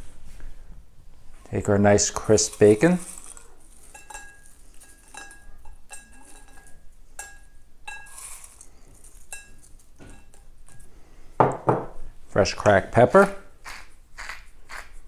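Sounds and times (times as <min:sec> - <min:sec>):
glass bowl clinking: 0:02.3 - 0:12.0.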